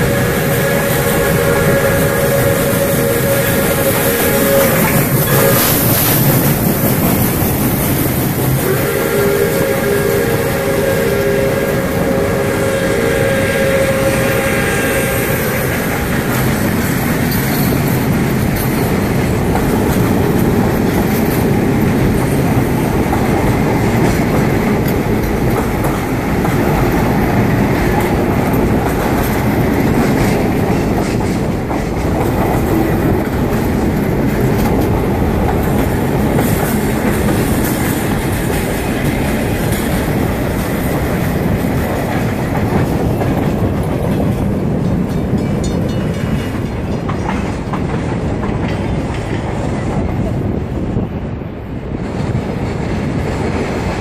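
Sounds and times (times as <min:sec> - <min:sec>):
steam whistle chord: 0:00.0 - 0:06.3, 0:08.6 - 0:16.4
train passing at speed: 0:00.0 - 0:54.0
wheels clacking over rail joints: 0:13.2 - 0:51.0.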